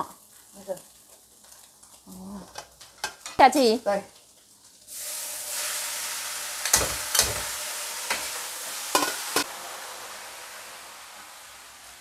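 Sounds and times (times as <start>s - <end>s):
vegetables sizzling in a wok: 0.0s - 12.0s
metal spatula clacking on wok: 8.9s - 9.5s.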